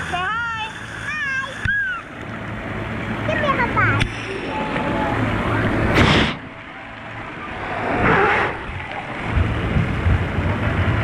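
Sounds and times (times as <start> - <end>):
pool water sloshing: 0.0 - 11.0
loud water splashes: 1.0 - 11.0.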